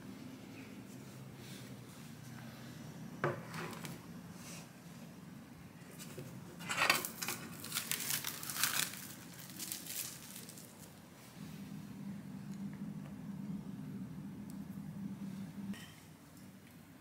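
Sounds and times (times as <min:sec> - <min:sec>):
cling film crinkling: 0:07.0 - 0:11.0.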